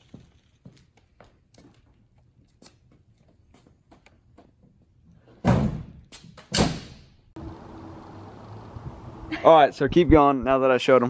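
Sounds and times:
footsteps: 0:00.0 - 0:04.8.

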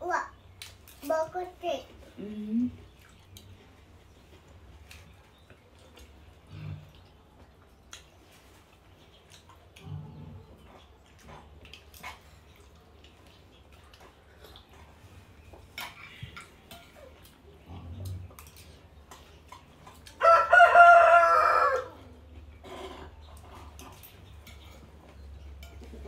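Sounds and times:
spoons clicking against plates: 0:15.8 - 0:17.4, 0:25.5 - 0:26.0
rooster crowing: 0:20.2 - 0:22.1.

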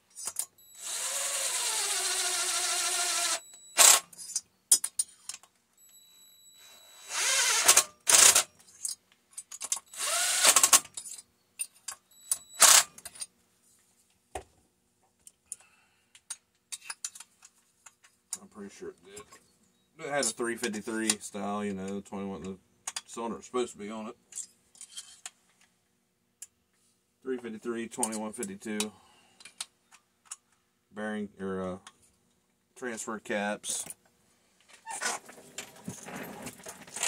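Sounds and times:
handheld power tool motor: 0:00.3 - 0:04.3, 0:06.7 - 0:08.5, 0:09.9 - 0:10.9, 0:12.6 - 0:12.9.

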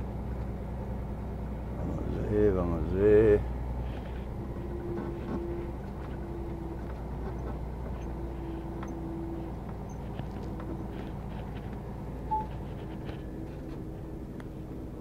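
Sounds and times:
diesel engine rumbling: 0:00.0 - 0:15.0
short high beep: 0:12.3 - 0:12.6.

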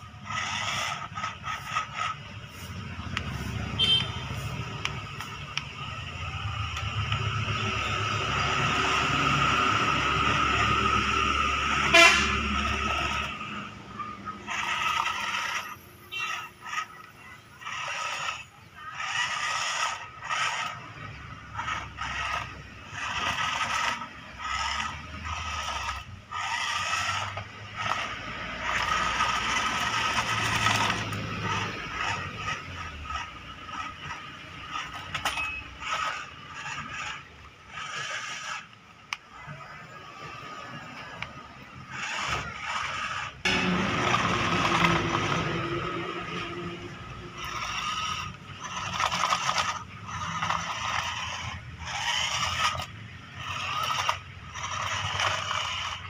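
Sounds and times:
toy electric motors whirring: 0:00.0 - 0:56.0.

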